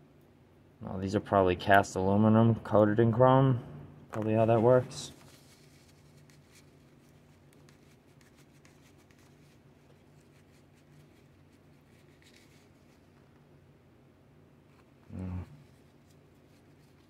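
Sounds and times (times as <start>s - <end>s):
low steady hum: 0.0s - 17.0s
paper towel rubbing metal: 4.7s - 13.2s.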